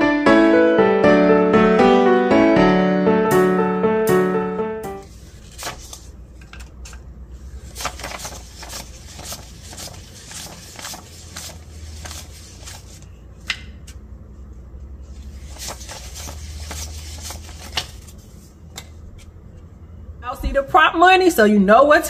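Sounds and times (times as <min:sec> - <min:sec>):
low steady hum: 0:00.0 - 0:22.0
paper banknotes rustling: 0:05.0 - 0:13.2, 0:15.0 - 0:18.5.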